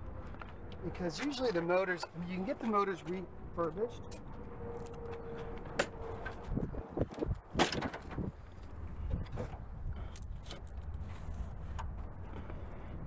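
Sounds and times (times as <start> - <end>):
tailgate knocks and clicks: 7.5 - 8.3.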